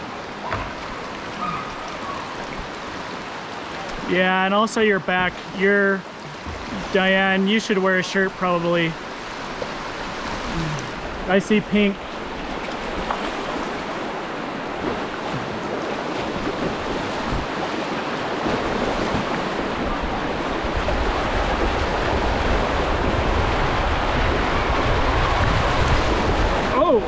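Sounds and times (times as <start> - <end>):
rushing creek water: 0.0 - 27.0
wind buffeting microphone: 11.9 - 27.0.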